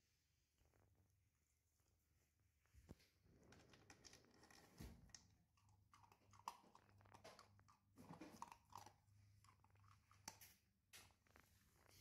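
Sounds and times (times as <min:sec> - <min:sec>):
puppy chewing food: 0:03.7 - 0:11.4.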